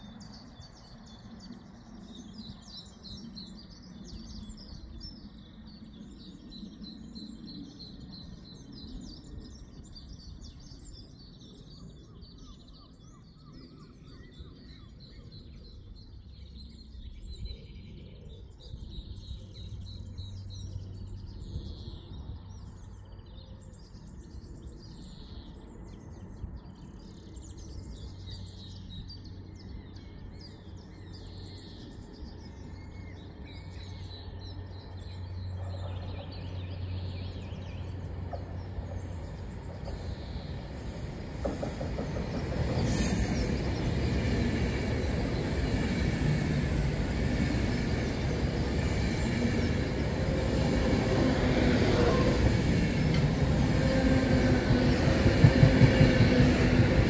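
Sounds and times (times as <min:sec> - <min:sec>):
small birds chirping: 0:00.2 - 0:57.0.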